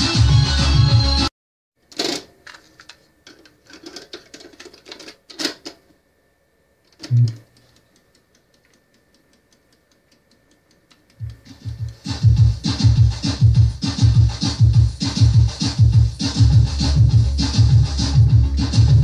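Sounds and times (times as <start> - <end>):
music: 0.0 - 1.3, 11.2 - 19.0
tape mechanism ticking and whine: 6.9 - 12.6.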